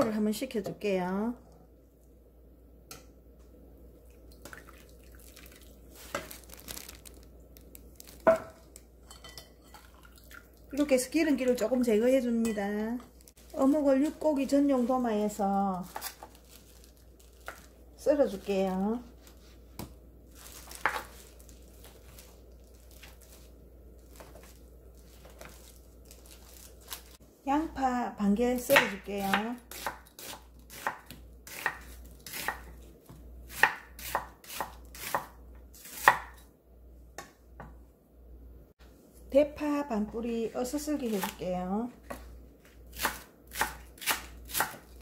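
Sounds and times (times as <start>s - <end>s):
water pouring and splashing: 4.1s - 7.0s, 9.7s - 10.8s.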